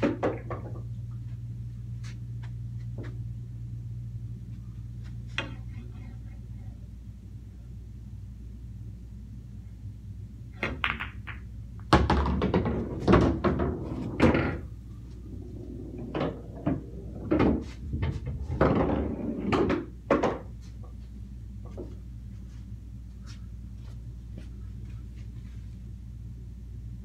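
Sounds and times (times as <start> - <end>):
pool balls knocking together: 0.0 - 0.9, 10.6 - 14.7, 15.4 - 20.5
cue striking ball: 10.6 - 14.7, 15.6 - 20.5.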